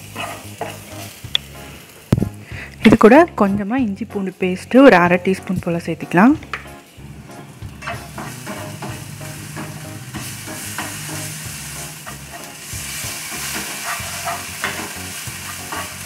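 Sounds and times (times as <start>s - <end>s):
spatula scraping a pan: 0.0s - 1.2s, 7.8s - 16.0s
food sizzling in hot oil: 0.0s - 3.4s, 4.2s - 16.0s.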